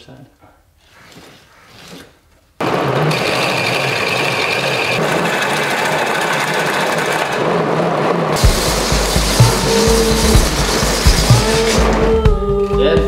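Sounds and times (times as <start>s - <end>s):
bike-powered lathe whirring: 2.6s - 12.1s.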